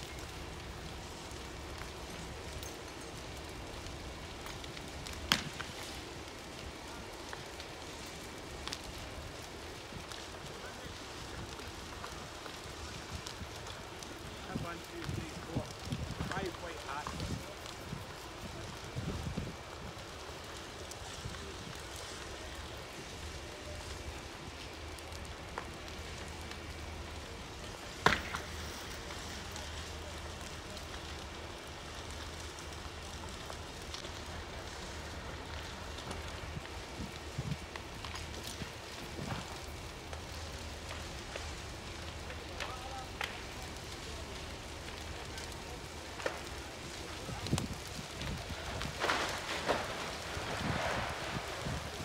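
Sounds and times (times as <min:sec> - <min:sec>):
fire crackling and popping: 0:00.0 - 0:52.0
loud sharp crack: 0:05.2 - 0:05.8, 0:27.8 - 0:29.7.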